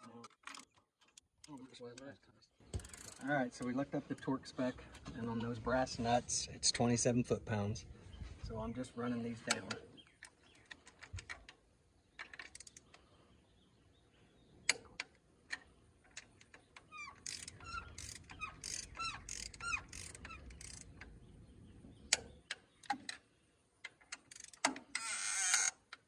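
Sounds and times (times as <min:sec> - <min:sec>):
bird chirping: 0:08.0 - 0:15.0, 0:16.4 - 0:23.6
socket ratchet clicking: 0:12.2 - 0:12.9, 0:16.2 - 0:21.1, 0:23.9 - 0:26.0.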